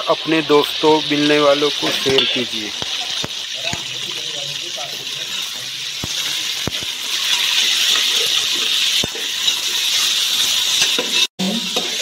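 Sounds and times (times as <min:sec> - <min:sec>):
chicken sizzling in hot oil: 0:00.0 - 0:12.0
ladle clinking against pot: 0:02.0 - 0:02.5.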